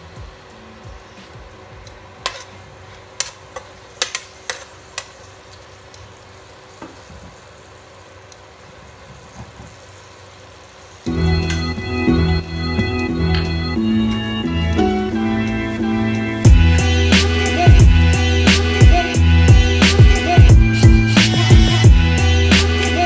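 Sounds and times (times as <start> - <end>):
garlic sizzling in butter: 1.9 - 11.1.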